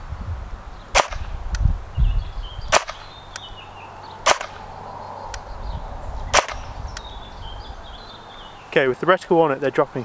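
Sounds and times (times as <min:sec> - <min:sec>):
airsoft rifle shots: 0:00.9 - 0:01.3, 0:02.7 - 0:03.1, 0:04.2 - 0:04.6, 0:06.3 - 0:06.7.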